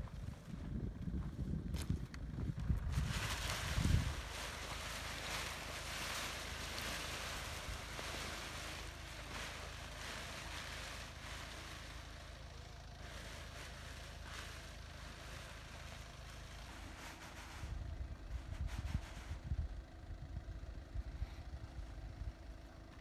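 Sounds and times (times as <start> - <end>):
wind buffeting microphone: 0.0 - 6.2, 17.6 - 22.2
nylon wing rustling: 2.8 - 19.4.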